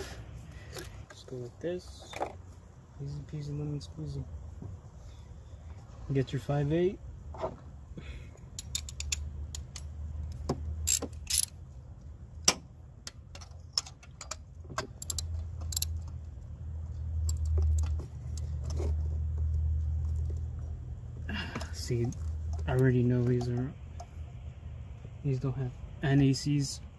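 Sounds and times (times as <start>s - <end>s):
metallic clicks of ratchet socket: 8.4s - 11.6s, 12.4s - 16.2s, 17.2s - 18.5s.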